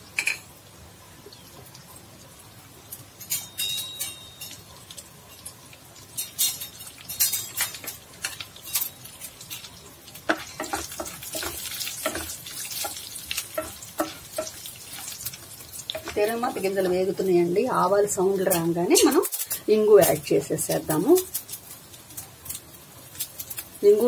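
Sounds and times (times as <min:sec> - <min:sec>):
spices sizzling in hot oil: 0:00.0 - 0:24.0
spatula stirring a pan: 0:03.1 - 0:20.2.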